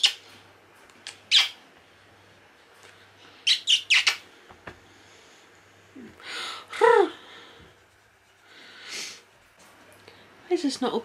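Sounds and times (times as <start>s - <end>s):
kissing smacks: 3.7s - 4.2s.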